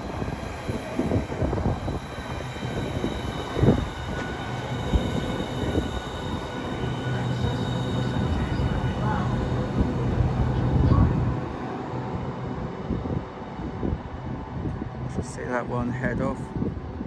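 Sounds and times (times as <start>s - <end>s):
train equipment humming: 0.0s - 15.1s
thin high whines: 0.2s - 11.1s.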